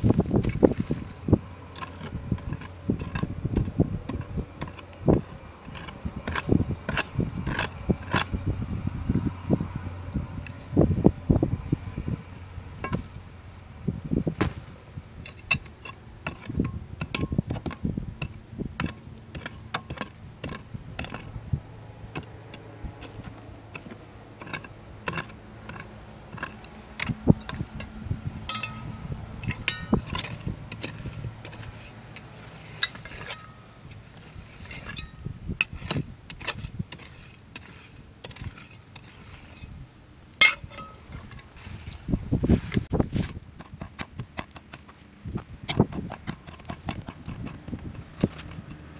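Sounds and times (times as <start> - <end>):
loose stones rattling: 0.0 - 8.4, 15.2 - 21.4, 22.1 - 27.9, 28.5 - 39.8, 40.4 - 41.7, 43.0 - 48.9
trowel scraping soil: 0.0 - 8.6, 14.3 - 21.5, 22.1 - 48.9
metal tools striking rock: 12.8 - 13.1, 15.2 - 21.4, 22.2 - 27.9, 28.5 - 34.0, 34.7 - 39.8, 40.4 - 41.3.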